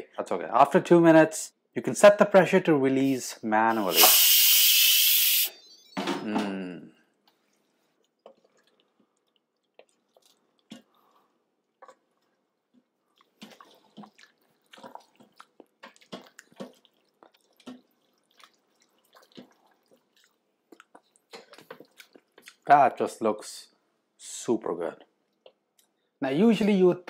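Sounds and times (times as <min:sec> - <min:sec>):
spoon stirring pasta in sauce: 0:07.3 - 0:22.6.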